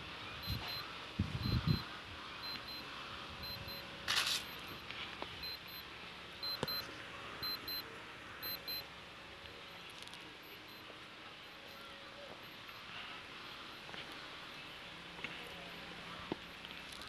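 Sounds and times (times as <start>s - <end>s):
high electronic double beeps: 0.4s - 0.8s, 1.4s - 1.8s, 2.4s - 2.8s, 3.4s - 3.8s, 5.4s - 5.8s, 6.4s - 7.8s, 8.4s - 8.8s.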